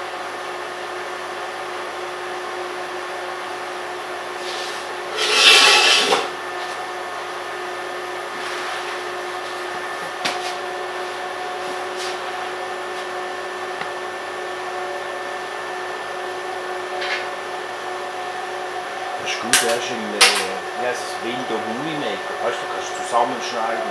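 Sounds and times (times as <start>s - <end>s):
welding machine hum: 4.3s - 6.8s.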